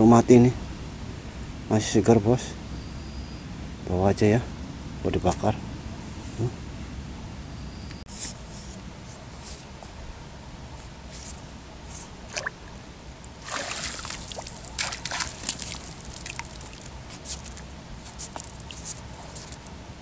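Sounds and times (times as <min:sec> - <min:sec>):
water dripping: 0:13.3 - 0:19.7
net splashing in water: 0:13.4 - 0:19.7.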